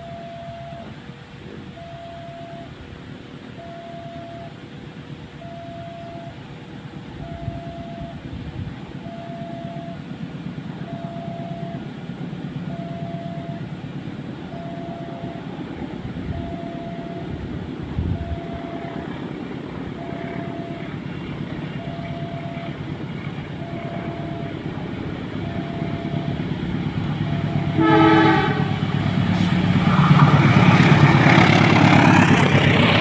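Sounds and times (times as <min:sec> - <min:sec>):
level crossing alarm tone: 0:00.0 - 0:01.0, 0:01.7 - 0:02.8, 0:03.5 - 0:04.6, 0:05.4 - 0:06.4, 0:07.1 - 0:08.3, 0:09.0 - 0:10.1, 0:10.8 - 0:11.9, 0:12.7 - 0:13.7, 0:14.5 - 0:19.3, 0:19.9 - 0:22.9, 0:23.5 - 0:28.8
diesel train rumble: 0:00.0 - 0:33.0.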